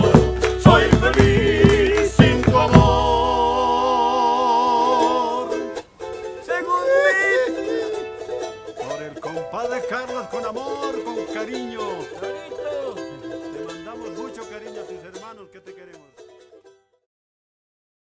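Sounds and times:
men singing in harmony: 0.0s - 5.8s, 6.4s - 14.5s
strummed small guitar: 0.0s - 17.0s.

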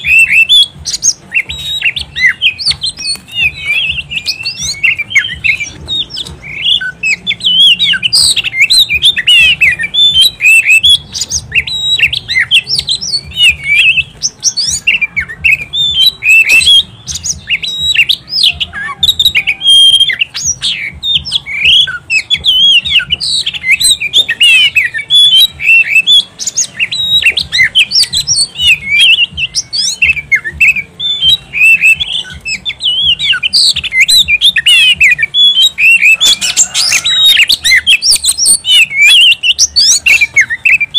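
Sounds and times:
bird singing: 0.0s - 40.9s.

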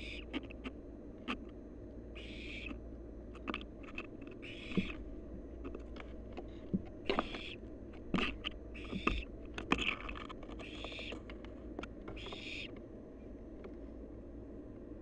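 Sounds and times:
owl nestlings hissing: 0.0s - 0.3s, 2.2s - 2.8s, 3.9s - 5.0s, 7.1s - 7.6s, 8.3s - 9.9s, 10.6s - 11.2s, 12.1s - 12.7s.

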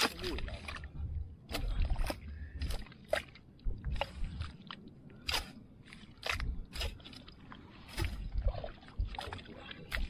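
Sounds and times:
spades cutting wet mud: 0.0s - 0.6s, 5.2s - 5.6s, 6.2s - 7.2s
low rumble: 0.3s - 10.0s.

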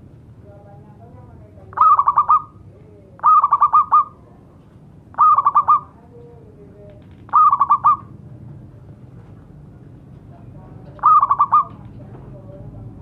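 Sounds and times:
dove cooing: 1.7s - 2.6s, 3.2s - 4.2s, 5.1s - 5.9s, 7.3s - 8.1s, 11.0s - 11.8s.

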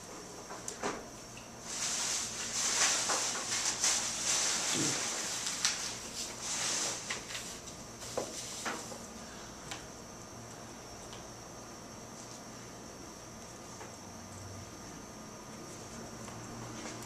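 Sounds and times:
paper rustling and scraping: 1.6s - 9.0s.

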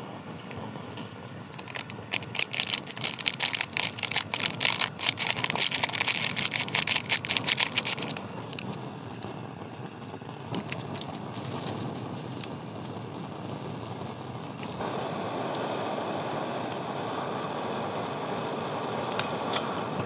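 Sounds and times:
rain pattering: 1.5s - 13.0s.

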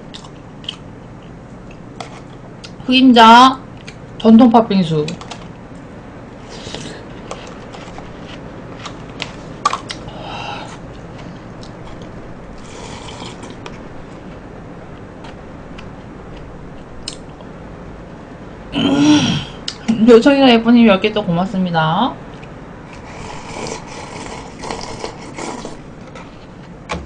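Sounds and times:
slurping: 12.6s - 13.6s, 22.9s - 25.9s.

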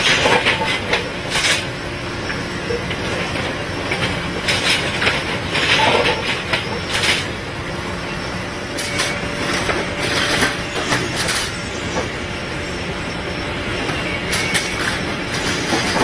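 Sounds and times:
metal clanks and scrapes: 0.0s - 1.7s, 2.7s - 7.3s, 8.8s - 12.1s, 14.3s - 16.0s
track machine running: 0.0s - 16.0s.

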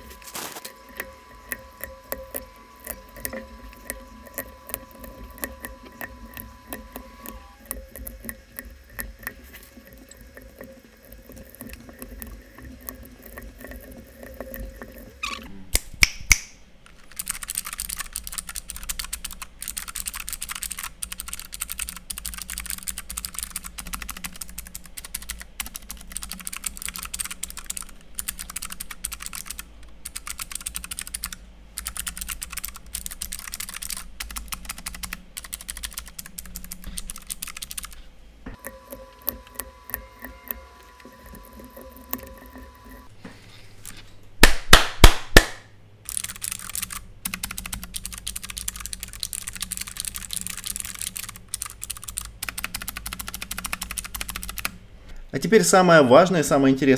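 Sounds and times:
clicky keyboard typing: 0.0s - 15.4s, 16.9s - 38.0s, 38.6s - 43.1s, 46.1s - 54.8s
loud snaps: 15.7s - 16.6s, 44.4s - 45.7s.

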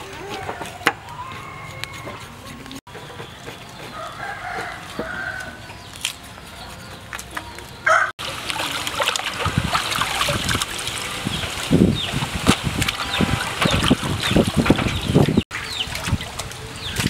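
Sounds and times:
knife scraping hide: 1.4s - 2.8s
rooster crowing: 3.9s - 5.6s, 7.8s - 8.1s
water splashing in a basin: 8.2s - 17.0s.

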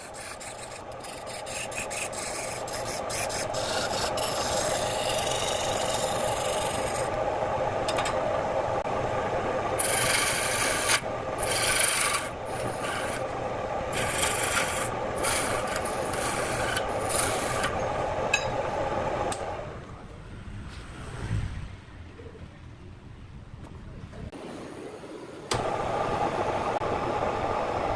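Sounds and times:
wood lathe running: 0.0s - 19.4s.

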